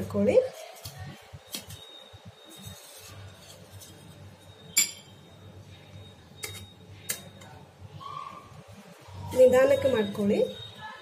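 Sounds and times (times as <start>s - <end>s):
spoon scraping steel plate: 2.4s - 5.1s, 6.4s - 7.4s
sharp metallic clink with ring: 4.8s - 5.1s.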